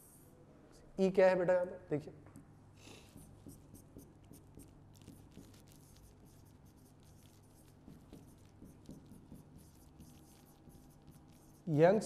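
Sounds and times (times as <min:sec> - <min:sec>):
pen scratching on a board: 0:03.0 - 0:11.8.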